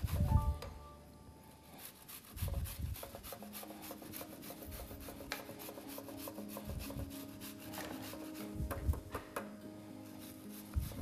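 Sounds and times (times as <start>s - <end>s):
onion grated on metal grater: 0.0s - 0.3s, 1.6s - 8.6s.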